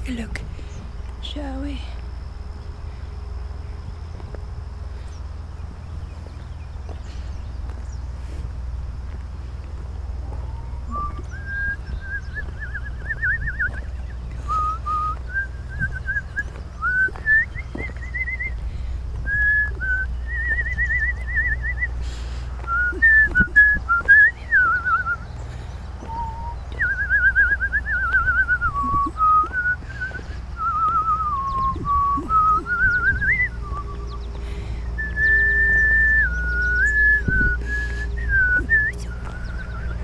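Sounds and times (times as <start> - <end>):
low steady rumble: 0.0 - 40.0
person whistling a tune: 10.9 - 18.6, 19.3 - 21.9, 22.6 - 25.2, 26.0 - 34.3, 35.0 - 40.0.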